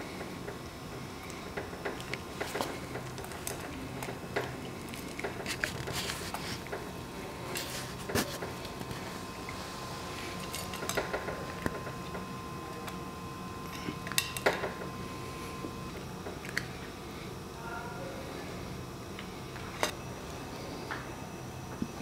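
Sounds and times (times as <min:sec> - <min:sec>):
cat eating dry kibble: 0:01.0 - 0:17.3.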